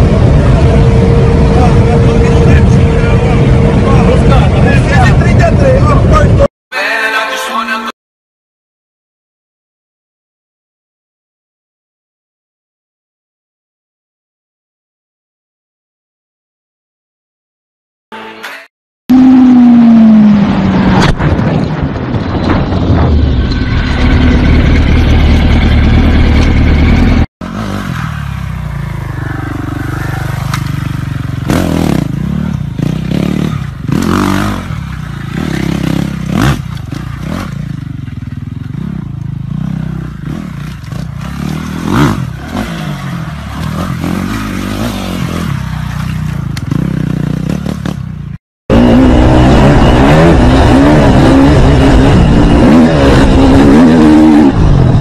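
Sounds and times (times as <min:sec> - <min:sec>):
motorcycle engine running fast: 0:00.0 - 0:06.5, 0:21.9 - 0:55.0
dirt bike engine: 0:18.2 - 0:55.0.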